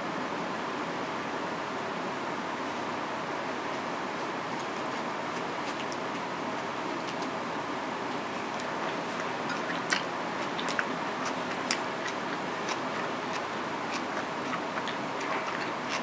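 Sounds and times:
sharp clicks from eating: 8.5s - 16.0s.

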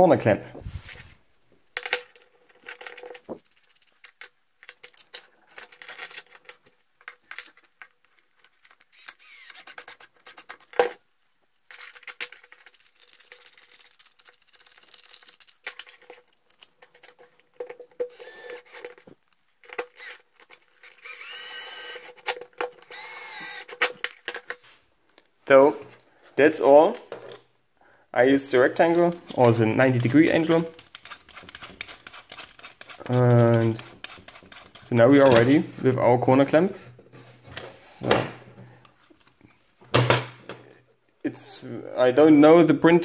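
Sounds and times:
cordless drill whining: 8.9s - 9.8s, 18.0s - 19.0s, 19.8s - 20.2s, 20.8s - 23.9s
plastic parts clicking and tapping: 11.7s - 21.1s, 22.0s - 25.3s, 28.8s - 35.5s.

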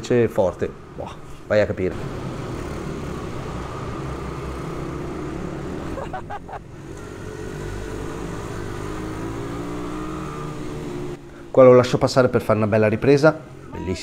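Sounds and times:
pit bike engine revving: 1.8s - 11.3s.

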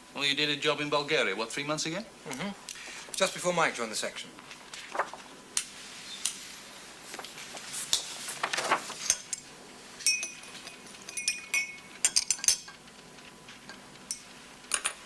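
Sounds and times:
paper rustling: 4.5s - 5.4s, 7.0s - 9.1s.

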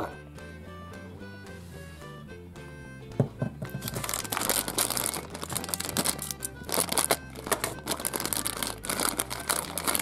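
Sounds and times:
background music: 0.0s - 10.0s
plastic bag crinkling: 3.8s - 10.0s.

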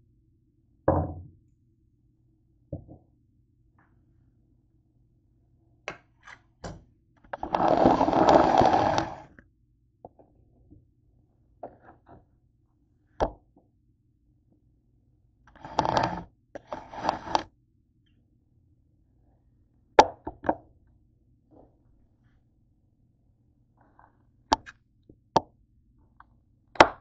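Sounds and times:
object thumping on countertop: 0.9s - 1.3s, 2.7s - 3.0s.

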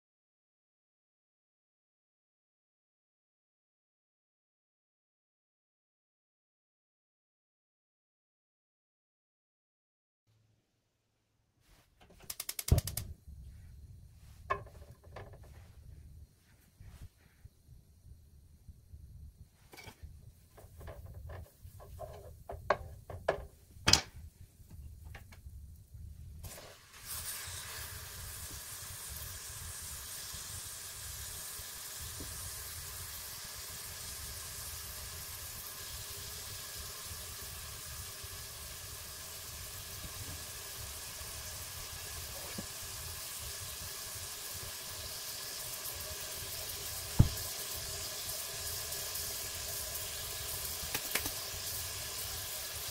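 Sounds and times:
sharp clicks and knocks: 12.0s - 13.1s
steak sizzling in a frying pan: 26.4s - 52.9s
thump: 47.2s - 47.4s.

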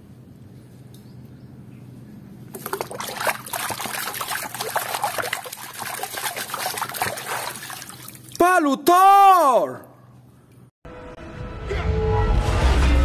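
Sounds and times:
water splashing in plastic basin: 2.5s - 8.4s.

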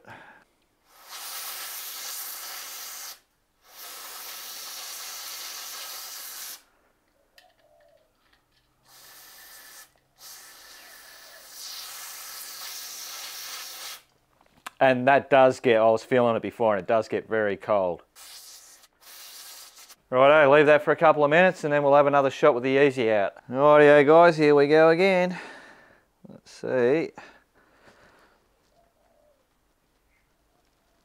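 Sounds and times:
aerosol spray hissing: 0.9s - 6.7s, 8.9s - 14.1s, 18.2s - 20.0s.

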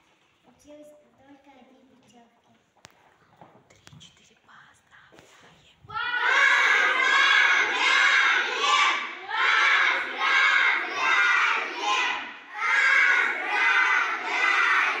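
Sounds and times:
children chanting in unison: 5.9s - 15.0s.

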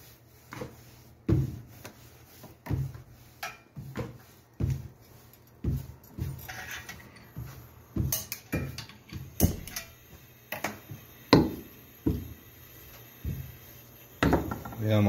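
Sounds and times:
rolling pin thudding on board: 11.3s - 12.4s.

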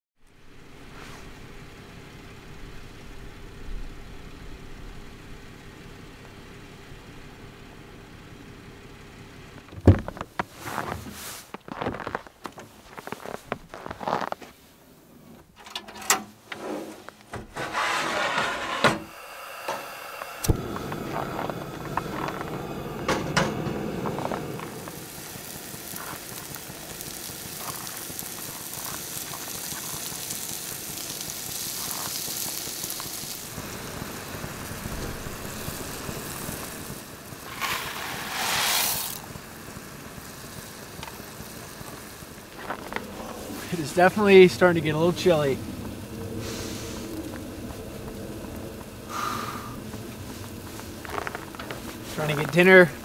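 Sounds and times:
food sizzling in a frying pan: 20.6s - 53.0s.

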